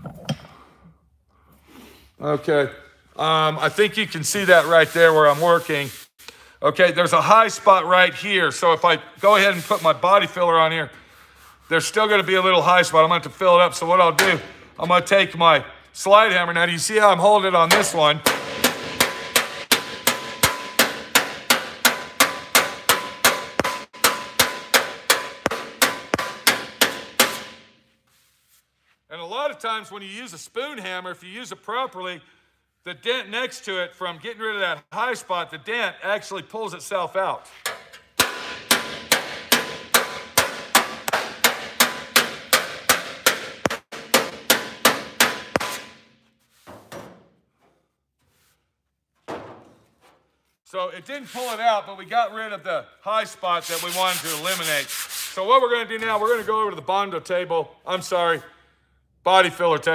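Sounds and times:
hammer tapping sheet metal: 17.7s - 27.8s, 37.7s - 46.1s.

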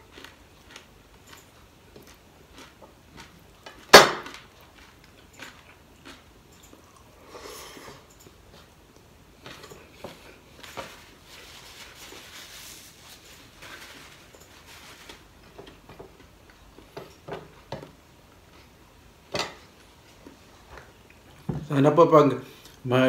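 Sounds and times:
chewing: 0.0s - 11.1s.

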